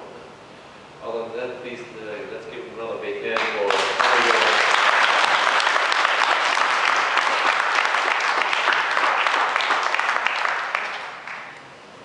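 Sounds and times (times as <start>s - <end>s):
audience applauding: 3.4s - 11.6s.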